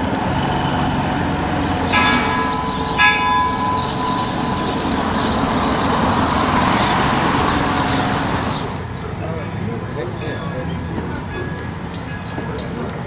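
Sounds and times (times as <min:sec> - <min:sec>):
locomotive bell ringing: 0:00.0 - 0:09.0.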